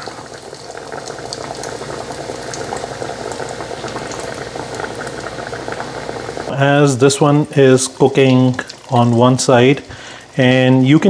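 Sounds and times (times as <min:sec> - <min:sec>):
oil bubbling and crackling: 0:00.0 - 0:11.0.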